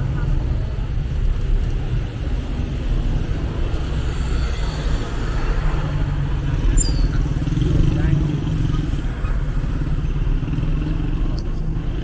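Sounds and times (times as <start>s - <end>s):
street traffic rumble: 0.0s - 12.0s
brief high squeak: 6.7s - 7.2s.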